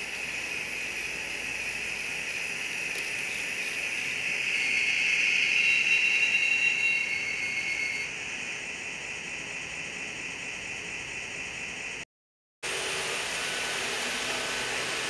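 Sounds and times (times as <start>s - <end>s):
model train engine sound: 0.0s - 12.0s, 12.6s - 15.0s
high brake squeal: 3.2s - 8.1s.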